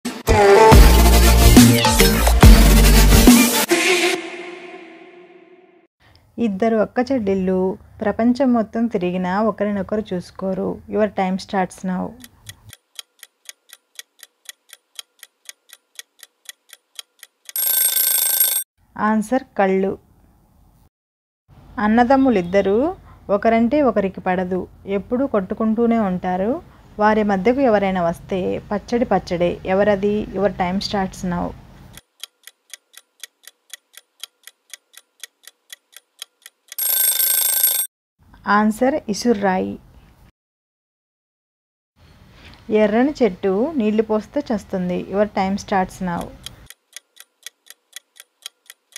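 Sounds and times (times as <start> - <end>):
clock ticking: 12.2 - 18.6, 31.9 - 37.8, 46.1 - 48.9.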